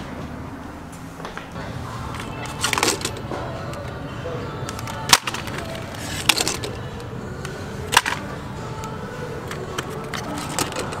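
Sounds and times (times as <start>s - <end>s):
steady background hum: 0.0s - 11.0s
plastic packages rattling on hooks: 2.2s - 3.2s, 4.7s - 6.9s.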